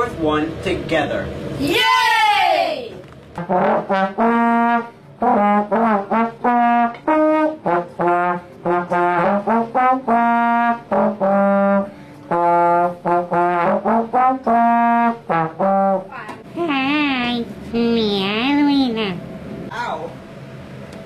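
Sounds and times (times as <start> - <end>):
solo trombone tune: 3.4 - 16.2.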